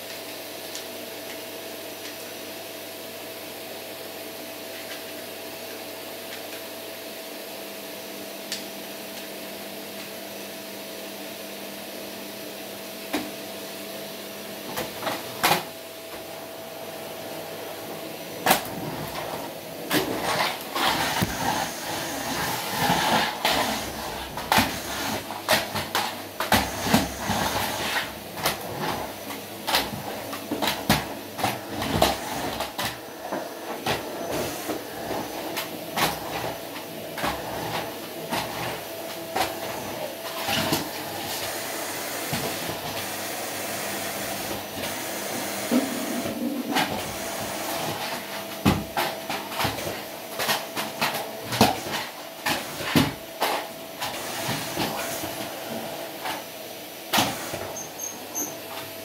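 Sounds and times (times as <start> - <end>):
vacuum cleaner running: 0.0 - 59.0.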